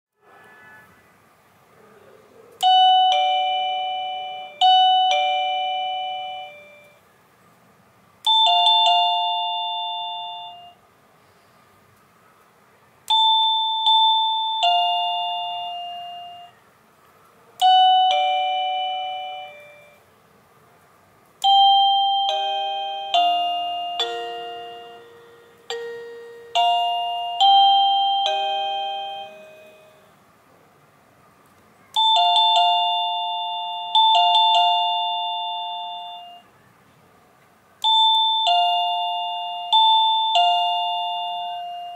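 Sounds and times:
electronic doorbell chimes: 2.6s - 7.0s, 8.2s - 10.8s, 13.1s - 16.6s, 17.6s - 20.1s, 21.4s - 30.2s, 32.0s - 36.5s, 37.8s - 41.9s.

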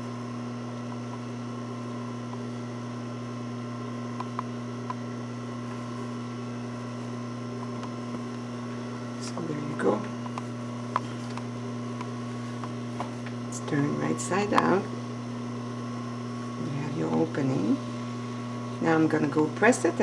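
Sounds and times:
electrical mains hum: 0.0s - 20.0s.

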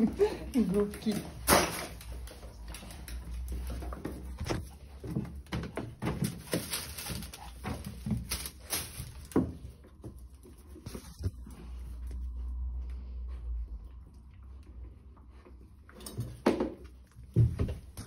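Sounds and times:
puppies scrabbling on tiled floor: 0.0s - 13.2s.

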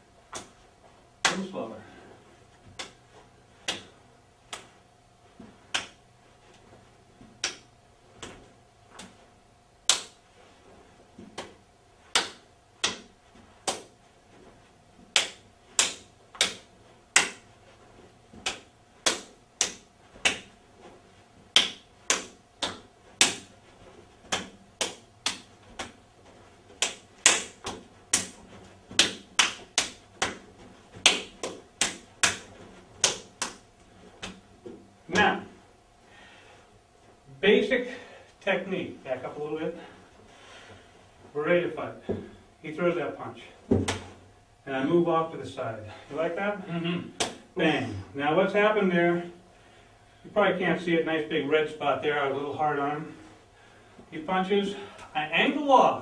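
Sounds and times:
hands slapping forearms: 0.3s - 0.6s, 1.2s - 1.6s, 2.5s - 4.8s, 5.4s - 10.3s, 11.2s - 35.6s, 43.7s - 44.2s, 47.1s - 47.5s.

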